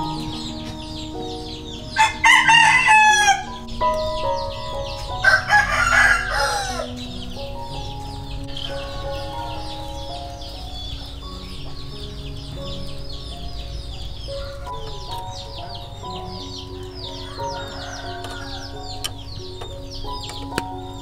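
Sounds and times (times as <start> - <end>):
rooster crowing: 2.0 - 3.6, 5.2 - 7.0, 16.9 - 19.1.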